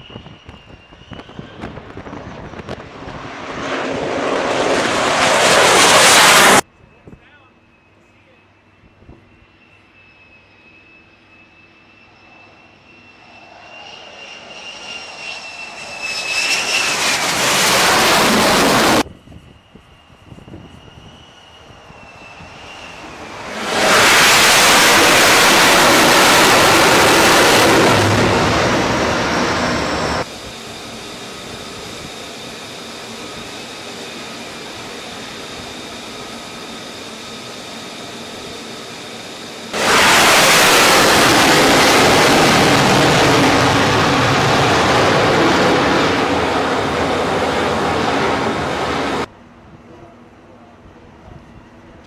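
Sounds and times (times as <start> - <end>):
faint high whine: 0.0 - 2.9, 5.3 - 52.0
jet engine roar: 0.0 - 50.0.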